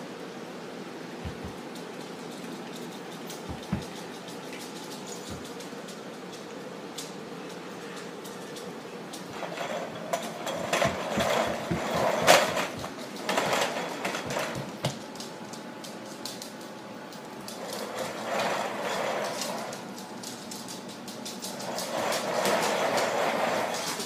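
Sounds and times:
baby walker wheels rumbling on floor: 0:01.2 - 0:01.6, 0:03.4 - 0:04.2, 0:09.3 - 0:15.0, 0:17.6 - 0:19.9, 0:21.4 - 0:24.0
knocks: 0:01.2 - 0:01.6, 0:03.4 - 0:04.1.

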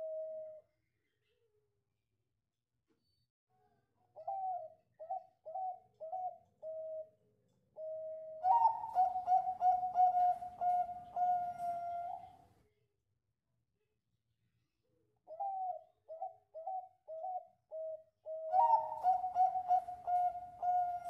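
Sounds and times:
dove cooing: 0:00.0 - 0:00.6, 0:04.2 - 0:07.2, 0:07.8 - 0:12.4, 0:15.3 - 0:21.0.

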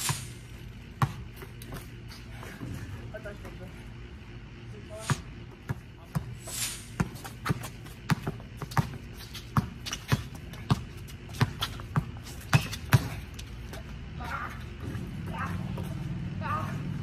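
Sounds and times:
basketball bouncing on concrete: 0:00.1 - 0:02.7, 0:05.1 - 0:16.0.

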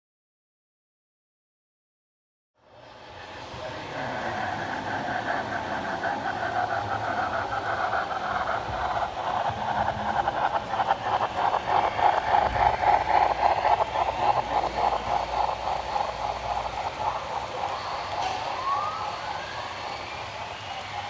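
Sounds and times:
model train wheels clicking: 0:03.2 - 0:21.0.

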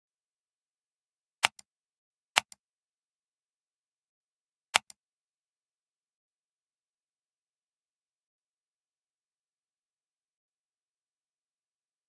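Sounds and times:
computer mouse clicks: 0:01.4 - 0:01.7, 0:02.4 - 0:02.6, 0:04.8 - 0:05.0.

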